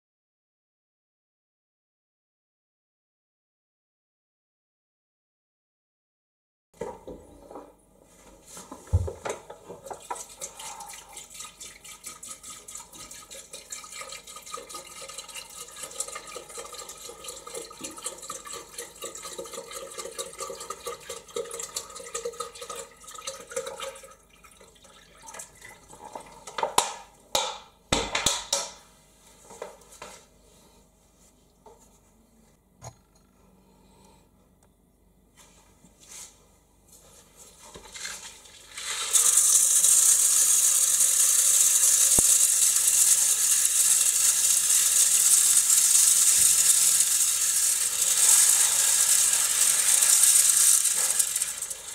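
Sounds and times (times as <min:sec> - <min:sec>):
water pouring through funnel: 0:38.7 - 0:51.9.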